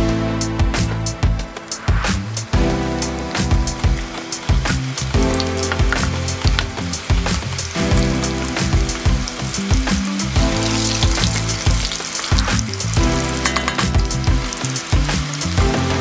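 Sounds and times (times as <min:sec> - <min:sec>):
background music: 0:00.0 - 0:16.0
dough deep-frying in oil: 0:02.4 - 0:16.0
spoon stirring: 0:10.6 - 0:14.6.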